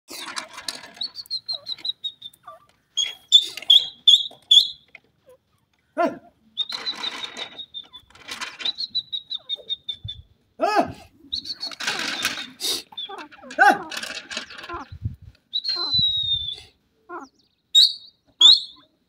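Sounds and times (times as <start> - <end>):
francolin calling: 15.5 - 19.0.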